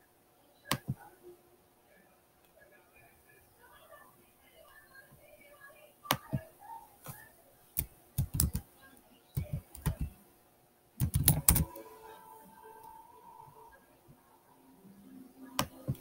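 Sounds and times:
keyboard key clicks: 7.8 - 8.6, 11.0 - 11.7.

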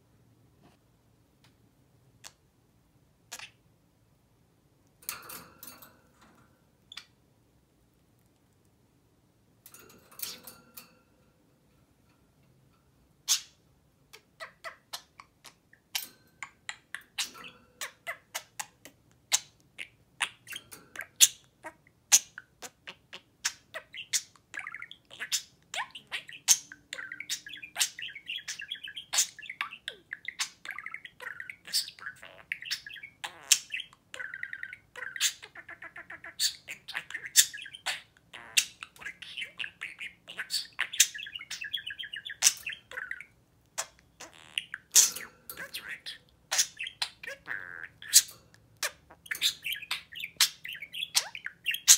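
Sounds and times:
budgerigar chirping: 13.3 - 13.6, 16.4 - 51.9.

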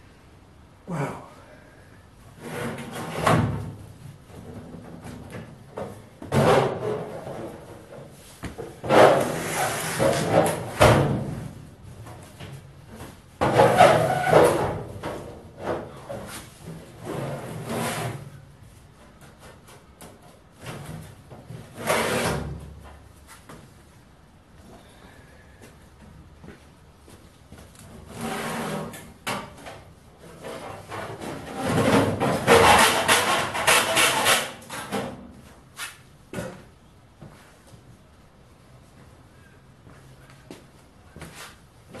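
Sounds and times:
sheet metal clanking and scraping: 30.3 - 35.1.

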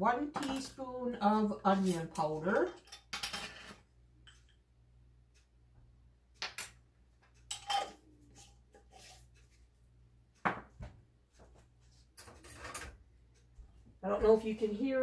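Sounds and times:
utensils clinking and scraping: 1.7 - 4.5, 7.5 - 9.3, 12.2 - 13.0
knock on counter: 10.4 - 10.9.

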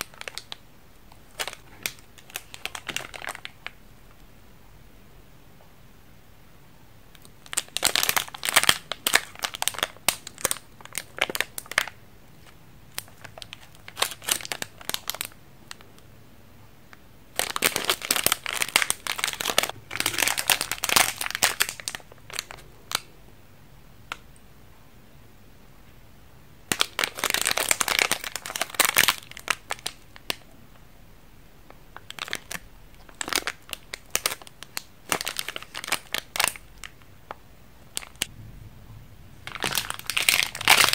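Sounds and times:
plastic wrappers crinkling: 0.0 - 3.8, 7.2 - 15.8, 17.3 - 23.1, 26.7 - 30.4, 32.0 - 37.1, 37.9 - 38.3, 39.4 - 40.9.

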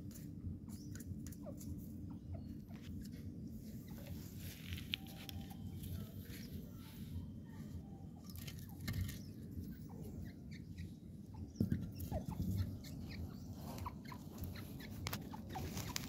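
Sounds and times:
partridge chirping: 0.1 - 16.0.

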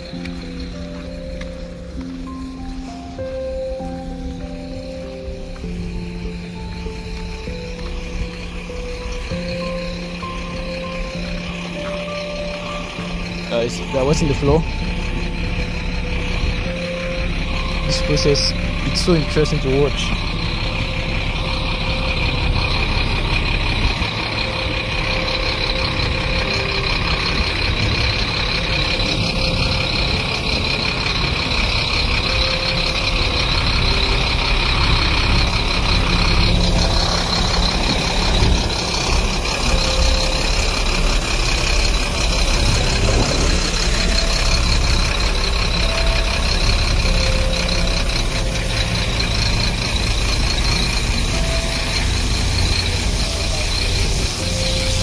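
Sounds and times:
diesel truck engine running: 0.0 - 55.0
water spraying: 33.4 - 55.0.

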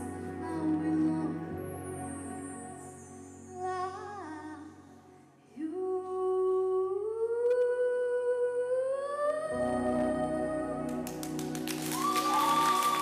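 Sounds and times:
girl singing into a microphone: 0.0 - 1.9, 3.4 - 11.0.

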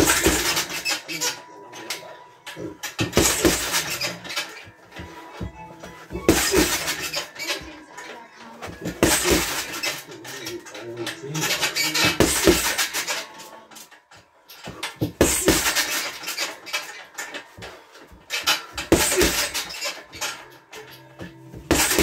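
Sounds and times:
gloves punching heavy bag: 0.0 - 0.8, 2.9 - 4.7, 5.4 - 7.3, 8.7 - 10.0, 11.4 - 13.1, 14.6 - 16.3, 18.1 - 19.8, 21.2 - 22.0.

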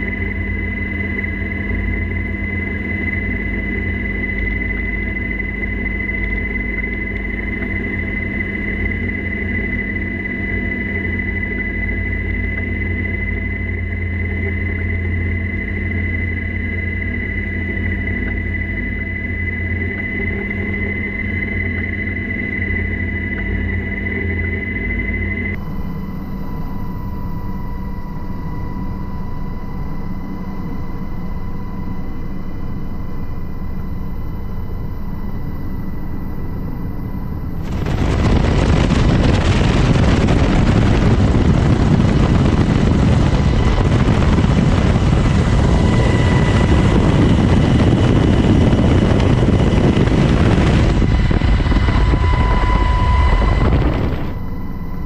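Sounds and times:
faint steady whine: 0.0 - 55.0
helicopter rotor and engine drone: 0.0 - 55.0
rush of wind and rotor noise: 33.2 - 55.0.

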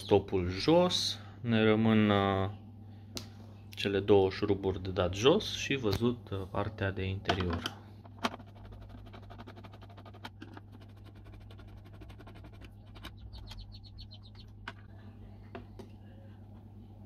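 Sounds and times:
steady low hum: 0.0 - 17.0
fast squeaky ticks: 10.8 - 14.6.

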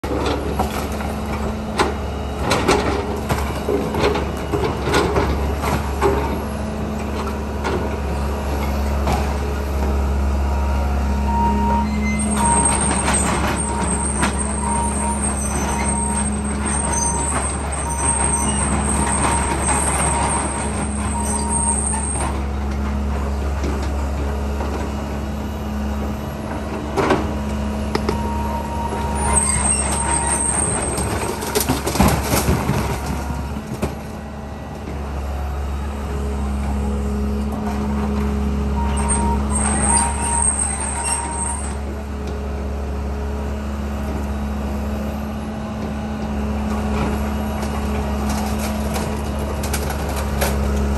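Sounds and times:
excavator diesel engine running: 0.0 - 50.9
beeping alarm: 10.4 - 22.4, 28.0 - 31.8, 38.7 - 41.8.

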